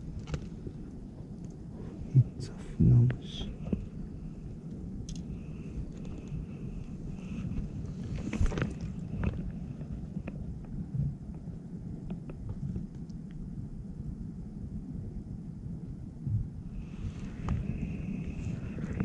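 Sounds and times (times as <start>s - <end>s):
wind buffeting microphone: 0.0s - 19.0s
fishing tackle clicking and rustling: 5.0s - 5.3s, 5.9s - 6.4s, 8.0s - 10.4s.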